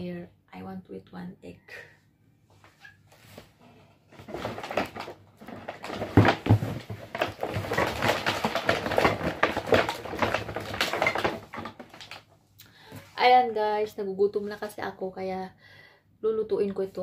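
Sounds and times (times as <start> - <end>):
objects rustling and clattering: 2.5 - 13.3.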